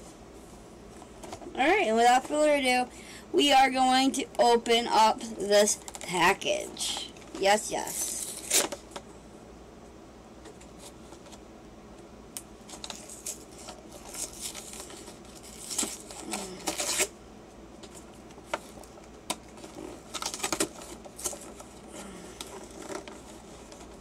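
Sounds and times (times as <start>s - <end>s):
packaging crinkling and rustling: 6.8s - 9.0s, 12.6s - 17.1s, 17.8s - 24.0s.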